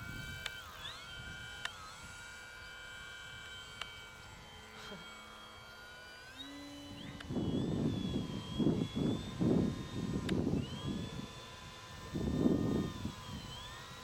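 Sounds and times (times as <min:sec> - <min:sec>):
model plane motor whining: 0:00.0 - 0:14.0
low wind rumble: 0:07.2 - 0:13.5.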